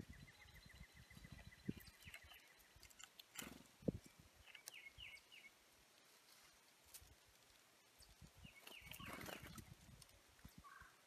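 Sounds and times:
bird chirps: 0:00.0 - 0:03.3, 0:03.9 - 0:05.6, 0:08.0 - 0:09.6
quiet outdoor ambience: 0:00.0 - 0:11.0.

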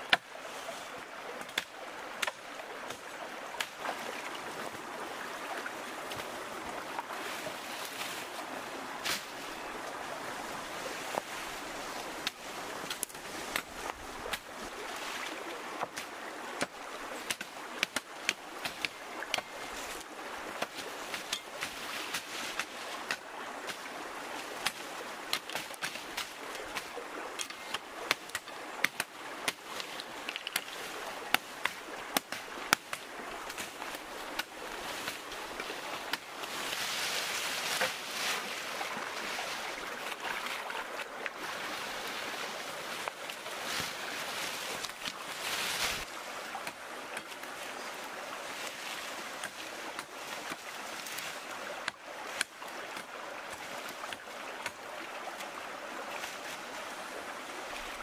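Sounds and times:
leaves rustling: 0:00.0 - 0:58.0
shallow water washing: 0:00.0 - 0:58.0
branches being dragged: 0:05.9 - 0:16.0, 0:18.6 - 0:52.5
twigs snapping: 0:12.2 - 0:14.5, 0:24.6 - 0:38.3, 0:43.0 - 0:47.5.

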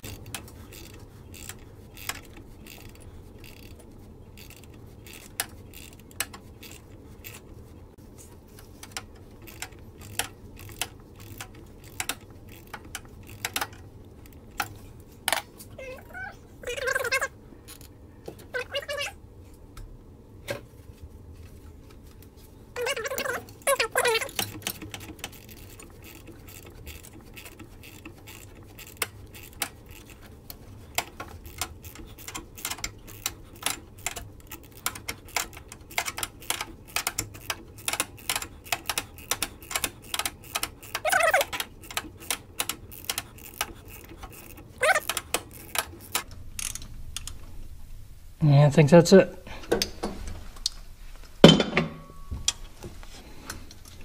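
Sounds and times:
ratchet wrench clicking: 0:00.0 - 0:07.4, 0:08.8 - 0:14.7, 0:22.8 - 0:47.3
short squeaks: 0:22.8 - 0:24.5, 0:40.9 - 0:41.6, 0:43.4 - 0:45.7.

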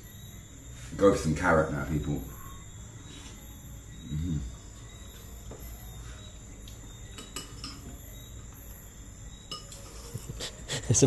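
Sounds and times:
insects chirping: 0:00.0 - 0:11.0
metal spoon clinking on bowl: 0:07.1 - 0:07.9, 0:09.5 - 0:10.0.

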